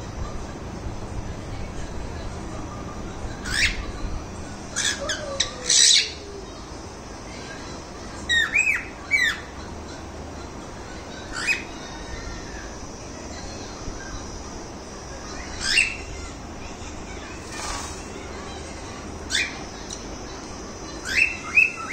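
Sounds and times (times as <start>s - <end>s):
cockatiels squawking and chirping: 3.4s - 3.9s, 4.7s - 6.2s, 8.3s - 9.5s, 11.3s - 11.7s, 15.4s - 16.3s, 19.3s - 19.7s, 21.0s - 21.9s.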